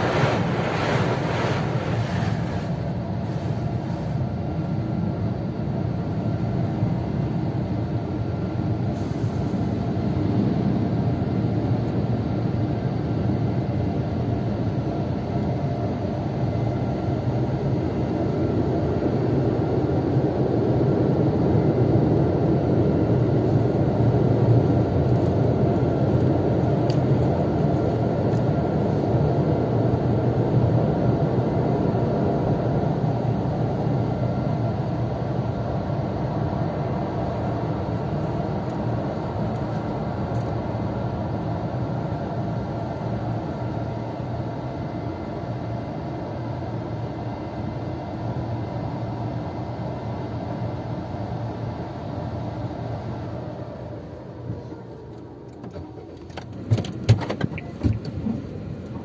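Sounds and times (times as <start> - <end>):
car wash machine motors droning: 0.0 - 14.6, 15.3 - 44.4.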